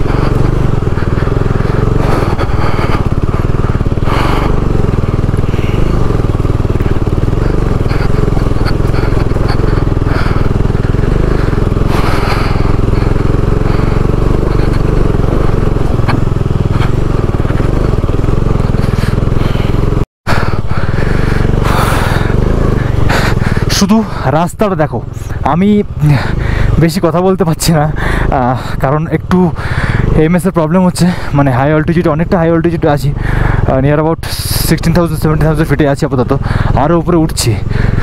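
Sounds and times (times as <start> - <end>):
motorcycle engine running: 0.0 - 38.0.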